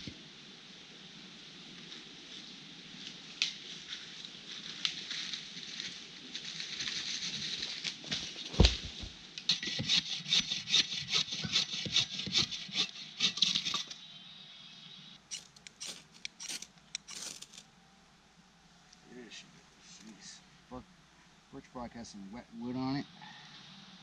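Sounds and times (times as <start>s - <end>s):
heavy thump: 8.5s - 9.2s
hand saw cutting log: 9.5s - 13.9s, 15.3s - 17.6s
knife scraping wood: 9.5s - 14.0s, 15.3s - 17.6s.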